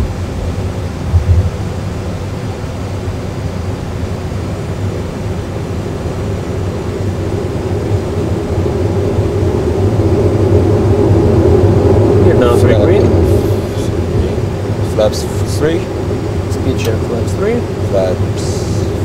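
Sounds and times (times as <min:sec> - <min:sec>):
low rumble of airflow: 0:00.0 - 0:19.0
landing gear thump: 0:01.1 - 0:01.7.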